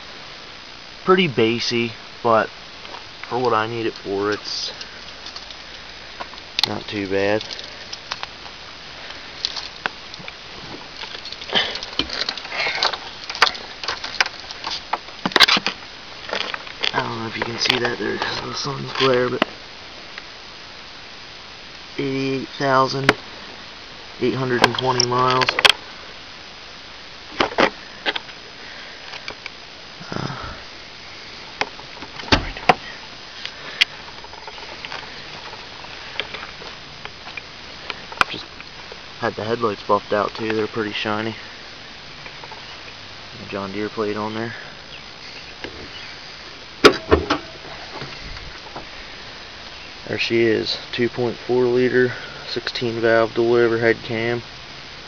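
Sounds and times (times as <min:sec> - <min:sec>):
rustling and handling noise: 0:02.8 - 0:19.6, 0:31.2 - 0:42.9
heavy thump: 0:32.2 - 0:32.8, 0:46.8 - 0:48.2.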